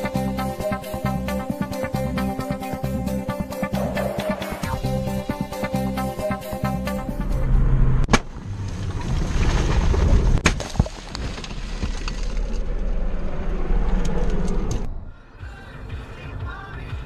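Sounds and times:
road and impact rumble: 7.1 - 16.9.

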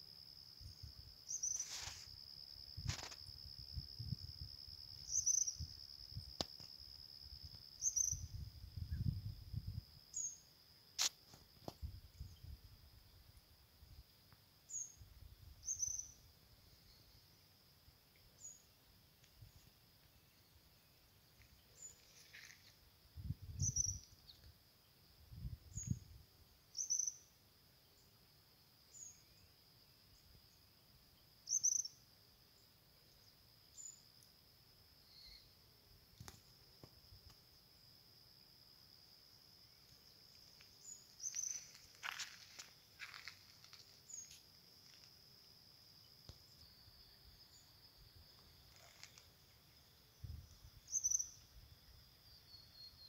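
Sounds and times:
insect trilling: 0.7 - 9.2, 23.4 - 24.4, 26.7 - 27.4, 31.4 - 32.0, 39.7 - 53.0
bird chirping: 5.0 - 5.7, 7.8 - 8.4, 15.6 - 17.4, 23.5 - 24.5, 26.7 - 27.3, 31.2 - 32.0, 40.8 - 41.8, 48.5 - 51.6, 52.2 - 53.0.

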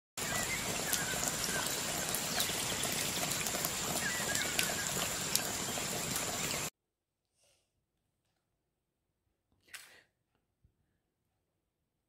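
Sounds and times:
steady water noise: 0.2 - 6.7.

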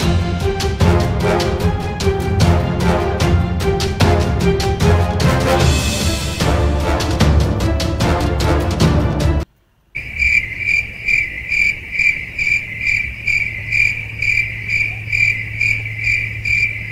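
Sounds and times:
dramatic background music: 0.0 - 9.5
faint steady hum: 9.4 - 16.9
crickets chirping: 10.0 - 16.9.

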